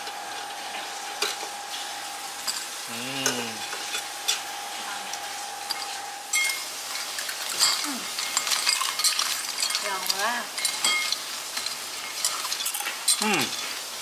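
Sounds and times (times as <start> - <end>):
steady high hum: 0.0 - 8.4
steady hiss: 0.0 - 14.0.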